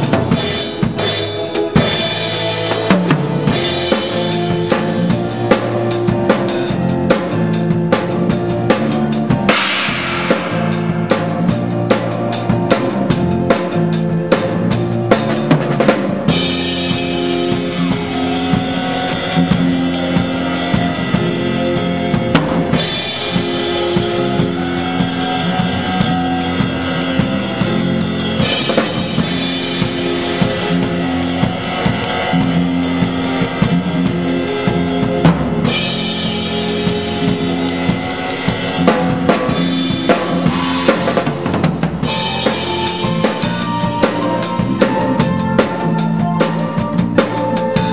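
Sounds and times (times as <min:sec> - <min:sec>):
drum kit driving beat: 0:00.0 - 0:47.9
keyboard and band chords: 0:00.0 - 0:47.9.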